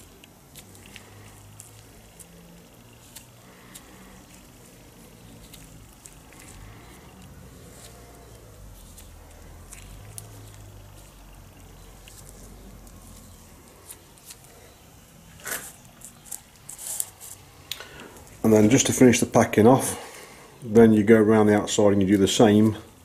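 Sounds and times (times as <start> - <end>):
gloved fingers squishing grease: 0.0 - 17.8.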